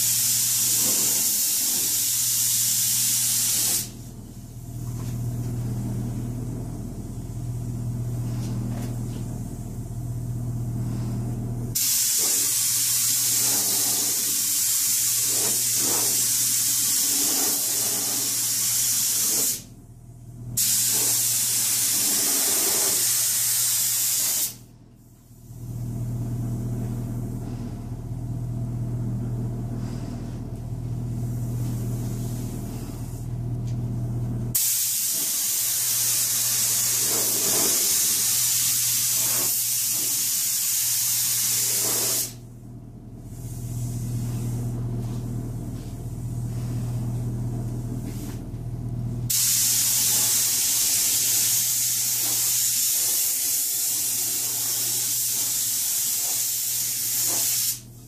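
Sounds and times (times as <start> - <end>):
paint spray gun hissing: 0.0 - 4.0, 11.8 - 19.7, 20.6 - 24.6, 34.6 - 42.4, 49.3 - 57.9
steady low hum: 0.0 - 23.4, 24.2 - 58.0.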